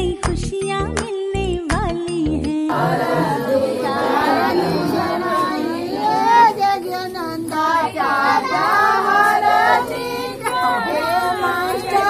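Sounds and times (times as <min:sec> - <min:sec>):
women singing together: 0:02.7 - 0:12.0.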